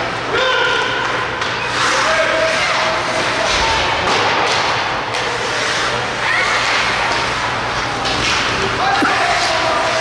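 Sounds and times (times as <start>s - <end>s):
skates scraping ice: 1.4s - 10.0s.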